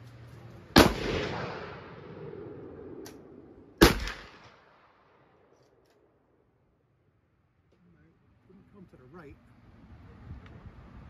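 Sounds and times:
rifle shots with echoing tail: 0.7 - 5.5.

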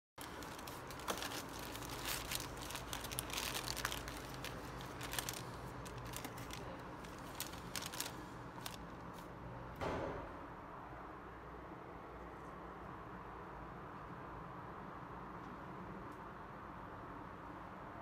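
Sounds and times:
paper wrapper crinkling: 0.2 - 9.3
low steady hum: 0.2 - 17.2.

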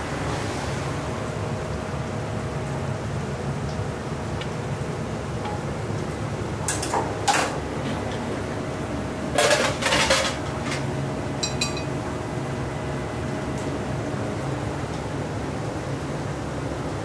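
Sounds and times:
metal utensils and dishes clattering: 9.4 - 10.4.

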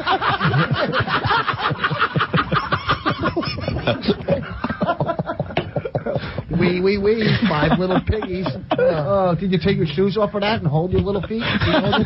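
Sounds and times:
men laughing: 0.0 - 10.1, 11.1 - 12.0.

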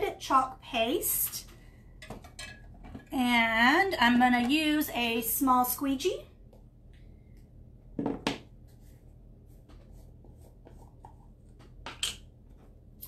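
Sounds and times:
knock on table: 8.0 - 8.5.

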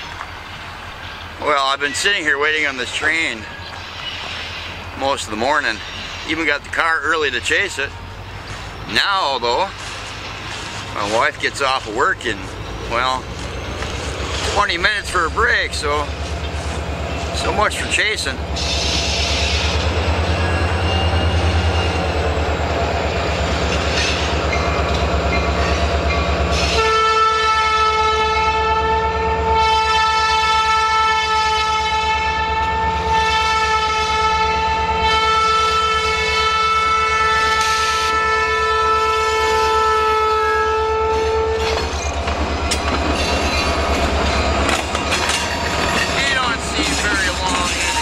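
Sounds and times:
diesel locomotive engine throb: 0.0 - 48.0
locomotive air horn blast: 26.5 - 41.8.

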